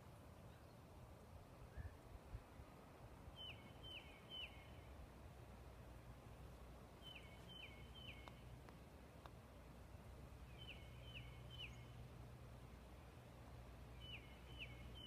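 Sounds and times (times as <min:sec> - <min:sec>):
faint outdoor rumble: 0:00.0 - 0:15.0
songbird whistling: 0:03.4 - 0:04.8, 0:07.0 - 0:08.4, 0:10.5 - 0:11.9, 0:13.9 - 0:15.0.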